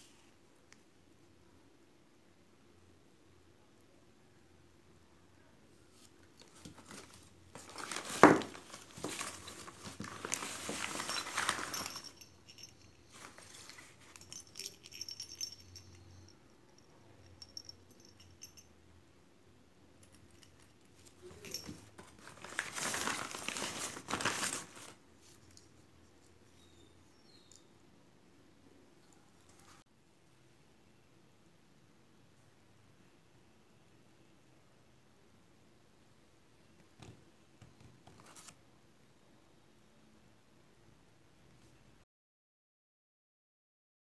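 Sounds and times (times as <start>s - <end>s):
plastic figurines crinkling: 6.2s - 15.6s, 21.0s - 25.7s.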